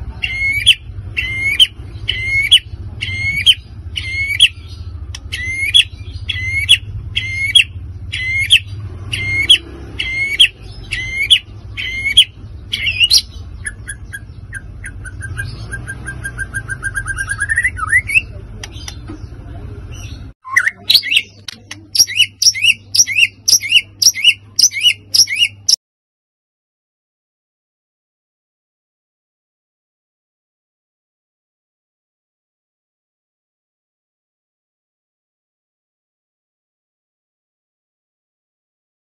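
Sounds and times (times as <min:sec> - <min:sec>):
bird sharp repeated notes: 0:00.0 - 0:19.3, 0:19.9 - 0:25.8
bird singing whistled phrases: 0:00.2 - 0:04.6, 0:05.3 - 0:18.4, 0:20.4 - 0:21.3, 0:22.0 - 0:25.8.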